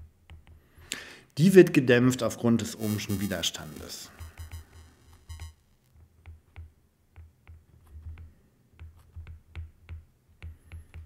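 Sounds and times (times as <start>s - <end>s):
stylus tapping on glass screen: 4.1s - 5.5s.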